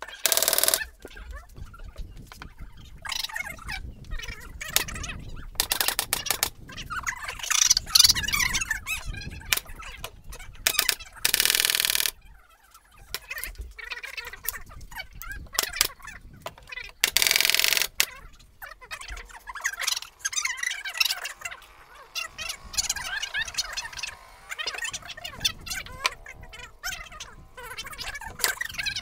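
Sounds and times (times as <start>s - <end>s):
electric drill driving screws: 0.1s - 0.9s, 10.7s - 12.1s, 17.0s - 18.1s, 19.1s - 29.0s.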